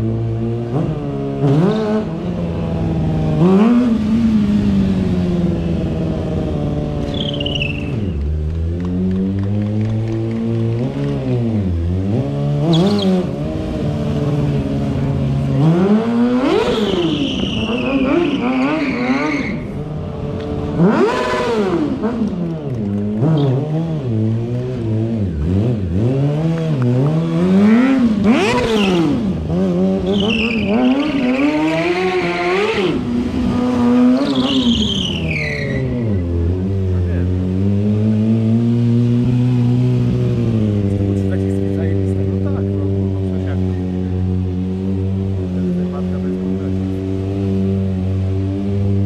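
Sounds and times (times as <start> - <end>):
motorcycle engine revving: 0.0 - 49.0
tyre squealing on pavement: 7.0 - 8.4, 12.6 - 13.4, 16.4 - 20.0, 28.3 - 29.3, 30.0 - 36.3.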